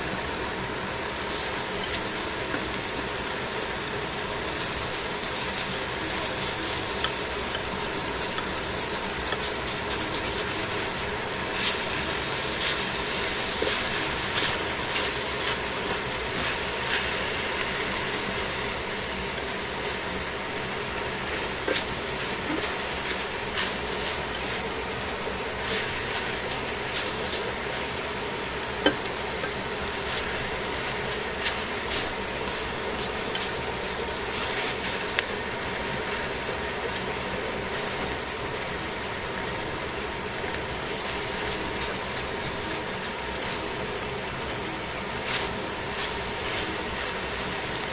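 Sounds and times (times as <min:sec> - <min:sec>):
food sizzling in a pan: 0:00.0 - 0:47.9
steady hum: 0:00.0 - 0:47.9
tongs clicking and scraping pan: 0:04.5 - 0:17.8.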